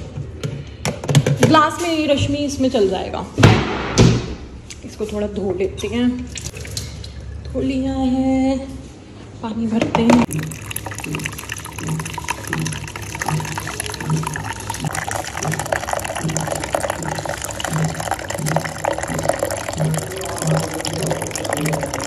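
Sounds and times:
water splashing into a bowl: 0:06.3 - 0:07.5, 0:10.2 - 0:22.0.

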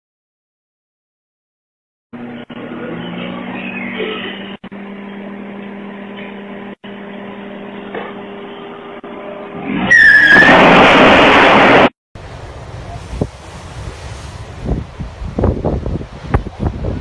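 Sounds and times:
short high squeal: 0:09.7 - 0:11.8
dense rushing noise: 0:10.4 - 0:17.0.

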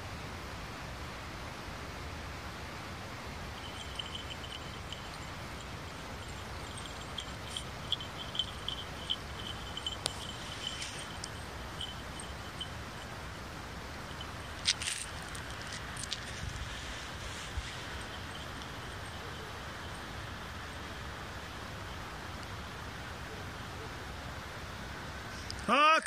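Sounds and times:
steady hiss: 0:00.0 - 0:26.0
high-pitched chirping: 0:03.6 - 0:13.1.

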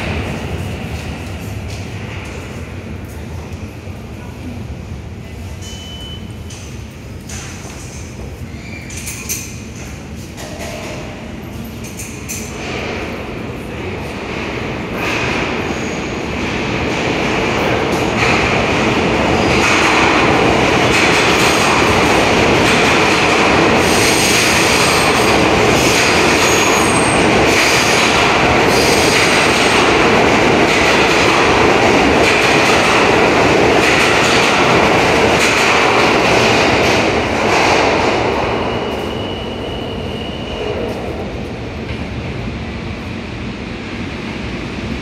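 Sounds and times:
train wheels rumbling on rails: 0:00.0 - 0:45.0
high wheel squeal: 0:38.7 - 0:40.9.

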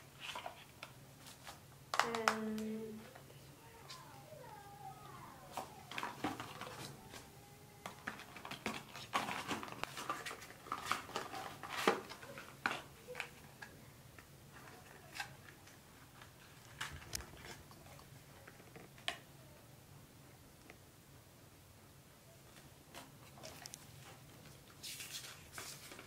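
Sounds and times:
packaging rustling: 0:05.4 - 0:13.4.

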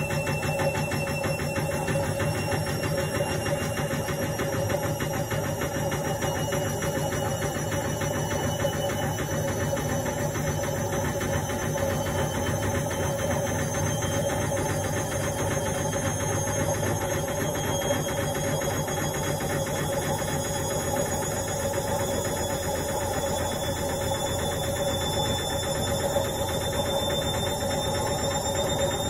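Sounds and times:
faint high whine: 0:00.0 - 0:29.0
washing machine motor hum: 0:00.0 - 0:29.0.

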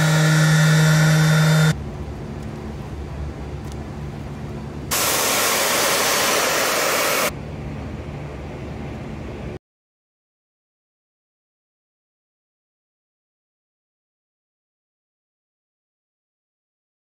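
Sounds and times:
orbital sander motor hum: 0:00.0 - 0:01.8
pressure washer jet hissing: 0:04.9 - 0:07.3.

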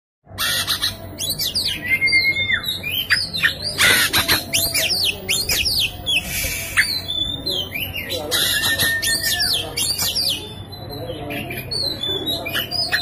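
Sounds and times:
bird singing whistled notes: 0:00.8 - 0:13.0
harsh rasping bird note: 0:03.8 - 0:07.3.

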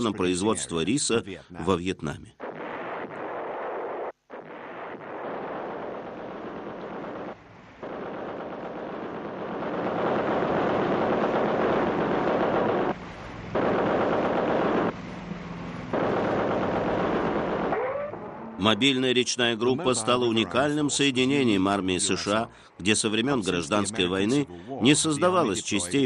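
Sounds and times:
machine-gun fire: 0:02.4 - 0:15.0, 0:15.9 - 0:17.8.

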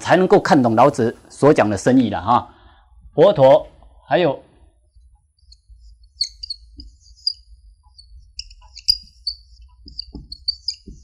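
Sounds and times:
low steady hum: 0:00.0 - 0:11.0
marker squeaking on whiteboard: 0:05.1 - 0:11.0
faint taps: 0:08.4 - 0:11.0.

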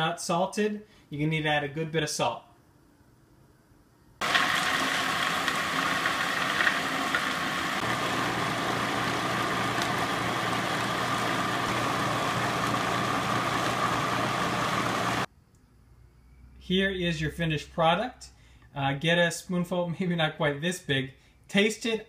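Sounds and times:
food processor motor whining: 0:04.2 - 0:15.3.

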